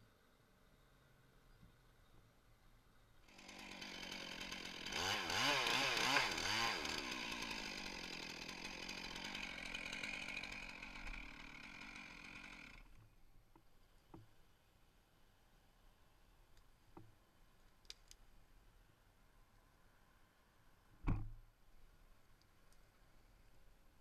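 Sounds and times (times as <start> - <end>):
chainsaw cutting wood: 3.3 - 13.1.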